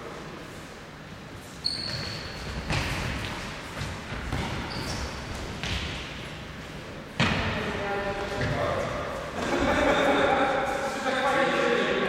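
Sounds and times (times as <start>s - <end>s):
high squeaks: 1.6s - 2.5s.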